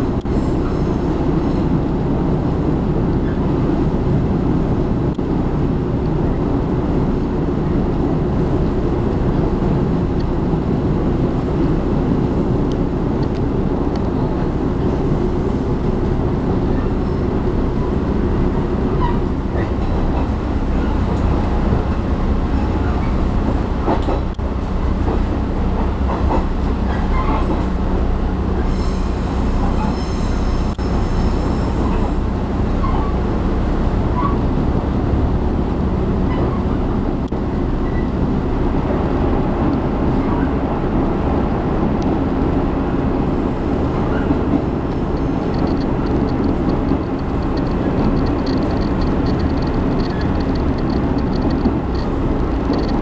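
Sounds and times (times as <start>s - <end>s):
rail clicks: 0.0s - 53.0s
railcar rumbling on track: 0.0s - 53.0s
high squeal: 28.7s - 32.2s.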